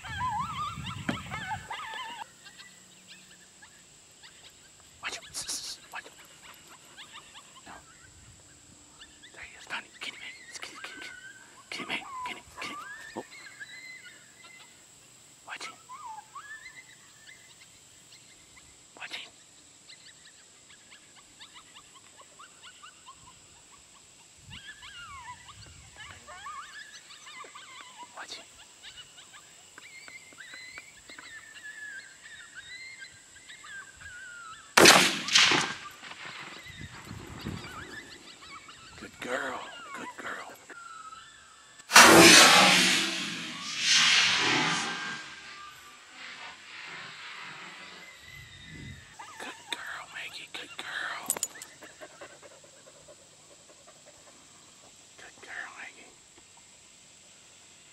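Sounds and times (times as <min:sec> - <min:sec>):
dog whimpering and yipping: 0:00.0 - 0:02.7, 0:24.5 - 0:28.1
rifle shot: 0:34.8 - 0:36.2, 0:41.9 - 0:45.6.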